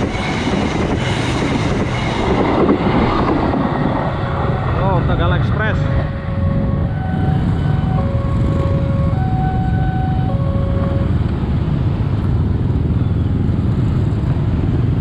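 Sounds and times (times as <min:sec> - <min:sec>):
two-tone crossing alarm chime: 0:06.2 - 0:11.2.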